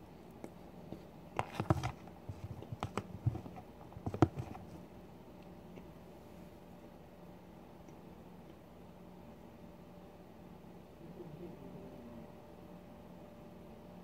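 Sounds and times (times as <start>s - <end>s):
plastic food tub clicks and knocks: 1.4s - 4.7s.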